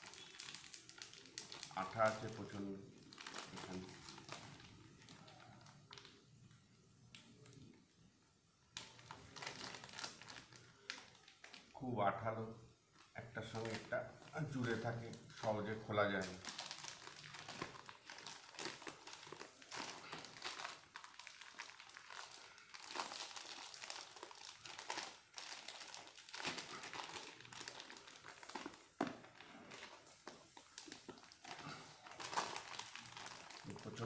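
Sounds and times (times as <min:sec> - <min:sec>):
plastic wrapper crinkling: 0:00.0 - 0:07.9, 0:08.5 - 0:34.0.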